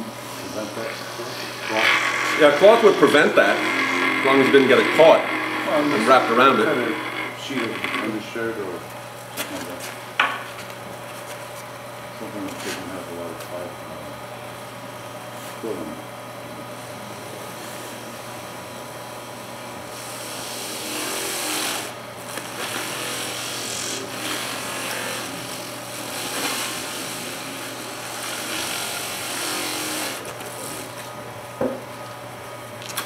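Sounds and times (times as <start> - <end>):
wood lathe humming: 0.0 - 9.0, 19.3 - 31.1.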